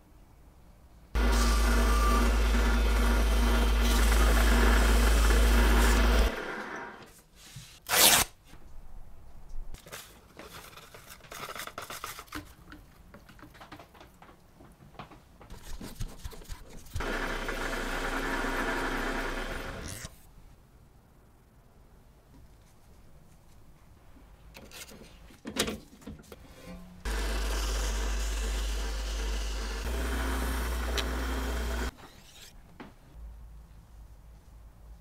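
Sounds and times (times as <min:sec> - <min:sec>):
lathe motor hum: 0:01.2 - 0:07.0, 0:17.0 - 0:19.8, 0:27.1 - 0:31.9
crinkling and handling: 0:09.8 - 0:15.2.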